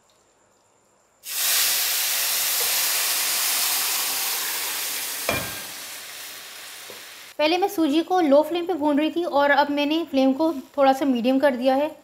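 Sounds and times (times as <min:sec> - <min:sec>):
syrup hissing in hot pan: 0:01.2 - 0:07.4.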